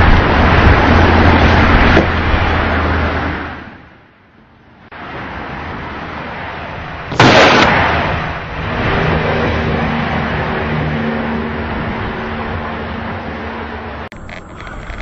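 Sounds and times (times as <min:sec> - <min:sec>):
loud rough noise: 0:00.0 - 0:03.9, 0:04.9 - 0:15.0
sudden loud bang: 0:07.1 - 0:08.2.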